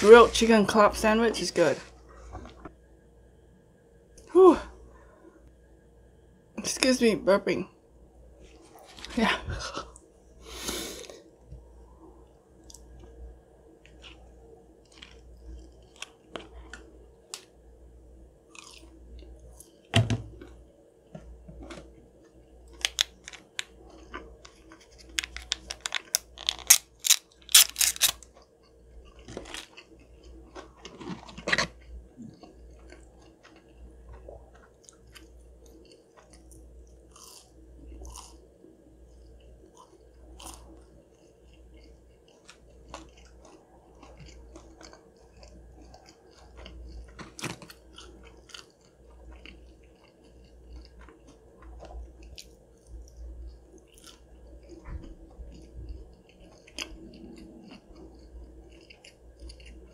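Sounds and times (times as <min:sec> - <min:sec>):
person chewing crispy food: 0:12.6 - 0:17.6, 0:18.4 - 0:20.6, 0:21.3 - 0:59.9.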